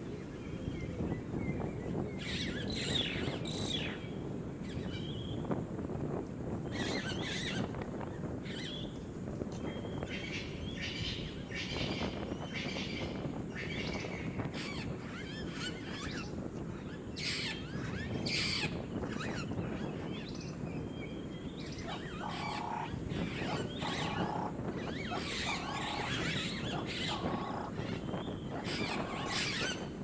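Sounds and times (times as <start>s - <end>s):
birds chirping and calling: 21.6s - 30.0s.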